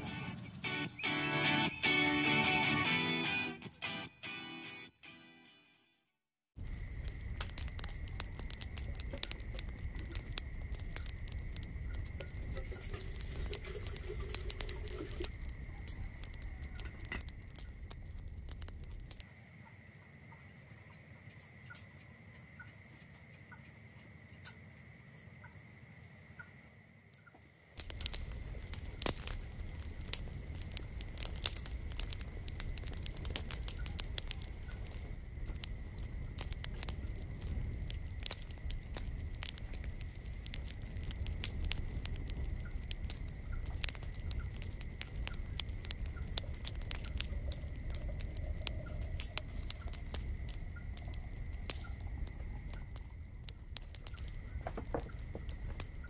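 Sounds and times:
wood fire crackling and popping: 6.5 - 19.3, 27.7 - 56.0.

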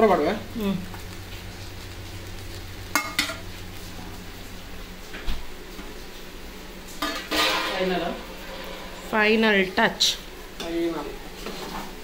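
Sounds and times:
steady low hum: 0.1 - 11.3
metal utensil clanking on pan: 7.0 - 9.2.

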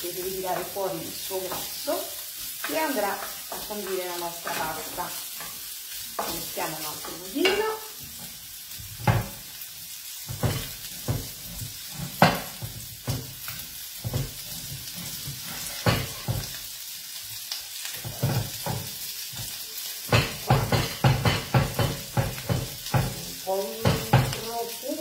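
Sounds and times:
meat sizzling in a frying pan: 0.0 - 25.0
knife chopping on wooden board: 10.3 - 11.4.

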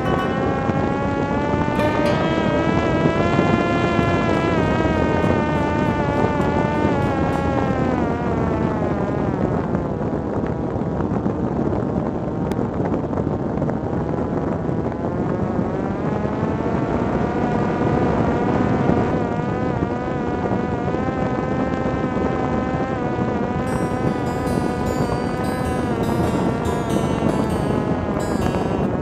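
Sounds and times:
drone motor whining: 0.0 - 9.5.

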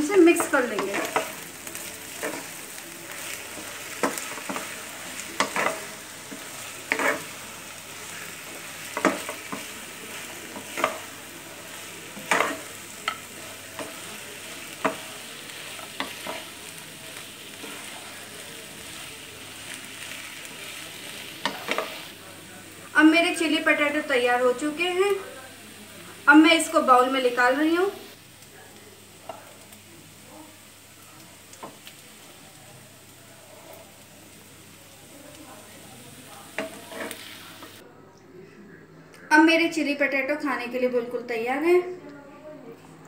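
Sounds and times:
spatula stirring potatoes in sauce: 0.0 - 22.9, 30.8 - 37.8
steady sizzle: 0.0 - 37.8
spatula scraping a pan: 0.3 - 22.1, 36.4 - 37.8.

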